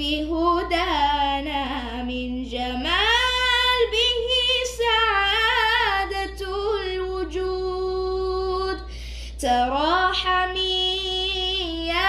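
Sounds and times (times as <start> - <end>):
boy singing unaccompanied: 0.0 - 8.8.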